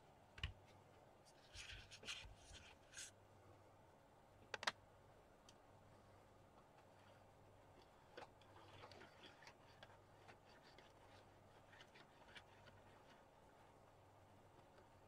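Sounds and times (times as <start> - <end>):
small plastic clicks and taps: 4.5 - 4.8.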